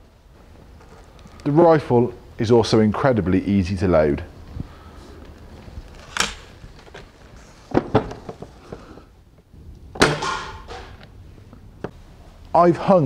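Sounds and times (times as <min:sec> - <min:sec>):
metallic clunk of barrel shutting: 0:09.9 - 0:11.0.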